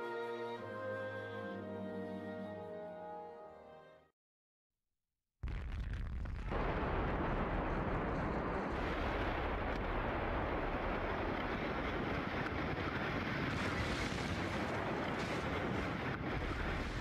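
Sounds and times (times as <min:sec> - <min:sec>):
explosion rushing rumble: 0:05.4 - 0:17.0.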